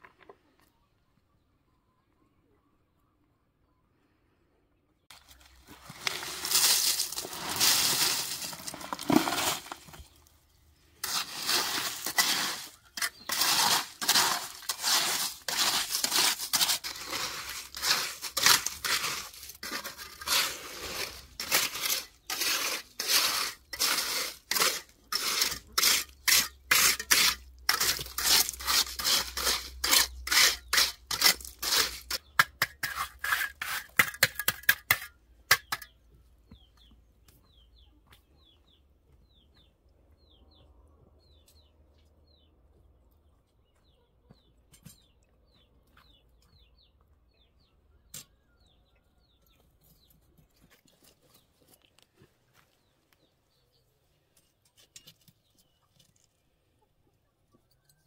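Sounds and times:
shovel scraping sand and gravel: 5.1 - 10.2, 11.0 - 35.9
faint bird chirps: 36.4 - 50.2.

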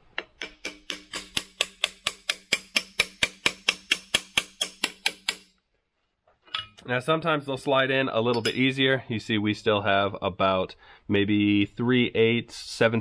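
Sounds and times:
hammer tapping on metal: 0.2 - 5.5.

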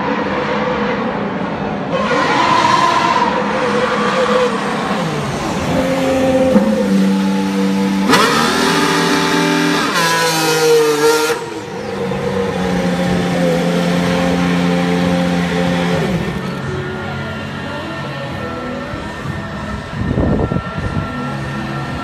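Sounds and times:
racing car engine at low speed: 0.0 - 22.0.

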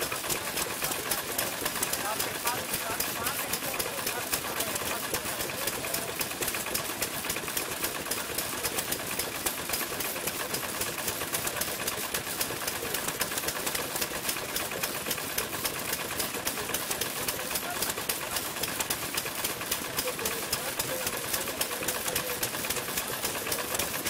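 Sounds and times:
stationary engines clattering: 0.0 - 24.0.

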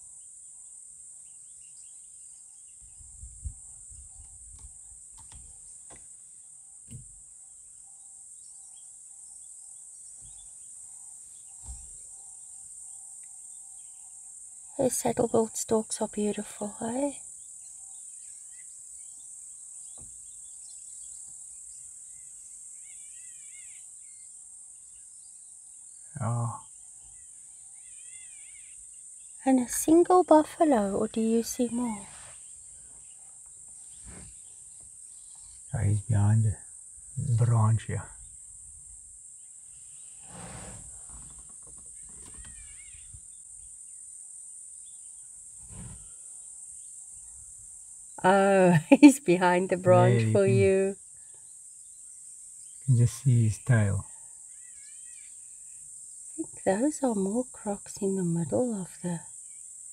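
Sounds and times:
insect chorus shrilling: 6.7 - 59.9
warbling bird calls: 41.9 - 43.2
high-pitched insect drone: 49.4 - 51.0, 52.9 - 58.8.

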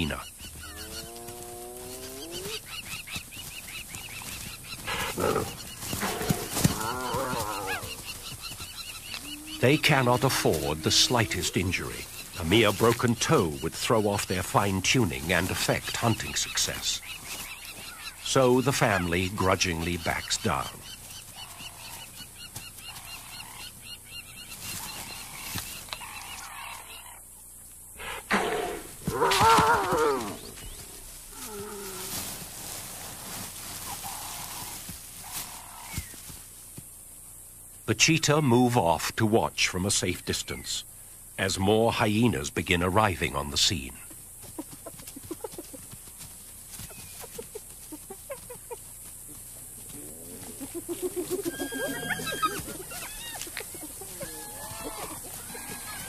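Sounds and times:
wavering animal call: 9.1 - 11.8, 49.7 - 56.0.

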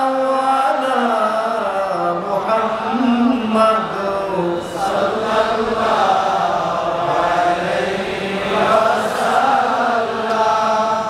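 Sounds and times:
man chanting into microphone: 0.0 - 7.6.

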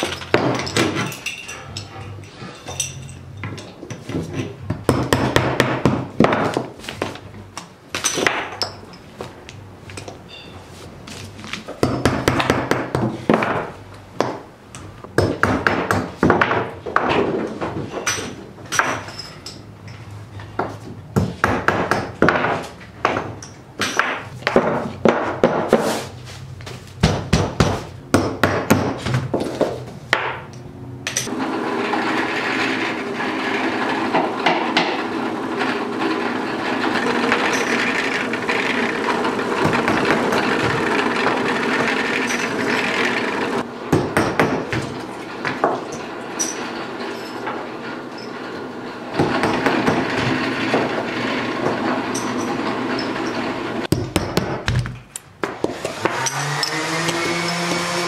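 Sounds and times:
drill press boring wood: 31.3 - 43.7, 46.3 - 53.9, 55.7 - 58.0.

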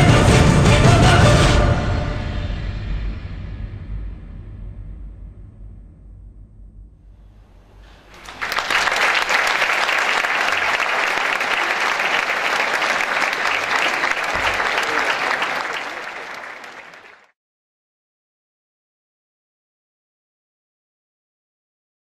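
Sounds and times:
audience applauding: 7.9 - 17.4.

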